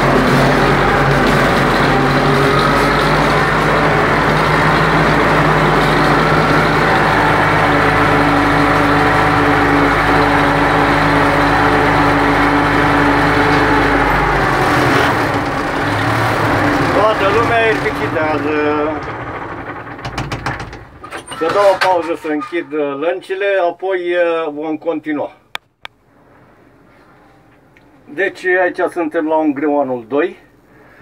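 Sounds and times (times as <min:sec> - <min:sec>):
tractor engine running: 0:00.0 - 0:22.5.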